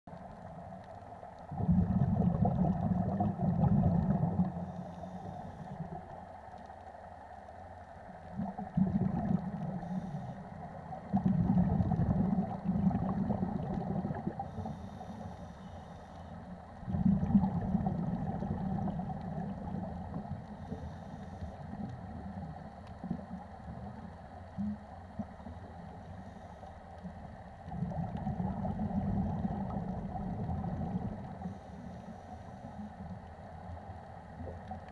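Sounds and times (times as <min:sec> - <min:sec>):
gurgle of exhaled bubbles: 0:01.5 - 0:04.8, 0:08.2 - 0:15.2, 0:16.7 - 0:26.0, 0:27.6 - 0:31.6
faint regulator hissing: 0:04.3 - 0:08.2, 0:09.4 - 0:11.2, 0:14.2 - 0:16.8, 0:19.2 - 0:27.6, 0:30.2 - 0:34.8.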